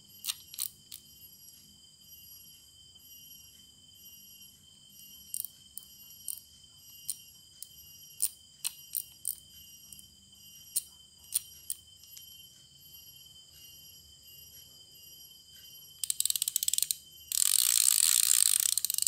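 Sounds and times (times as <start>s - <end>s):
insects chirring: 0.0s - 19.0s
fishing reel drag clicking: 16.0s - 19.0s.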